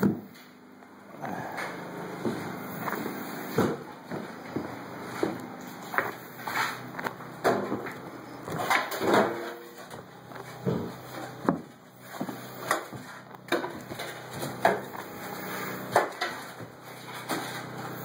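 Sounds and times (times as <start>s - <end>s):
shovels scraping: 5.8s - 6.9s.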